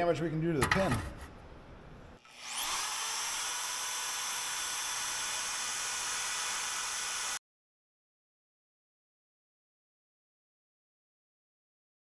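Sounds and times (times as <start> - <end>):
band saw motor whining: 2.2 - 7.4.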